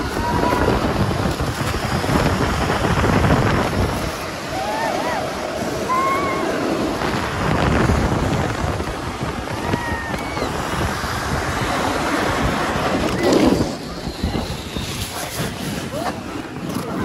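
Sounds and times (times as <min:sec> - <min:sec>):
snow tube sliding on snow: 0:00.0 - 0:17.0
wind on microphone: 0:00.0 - 0:17.0
high squeals: 0:13.0 - 0:15.5.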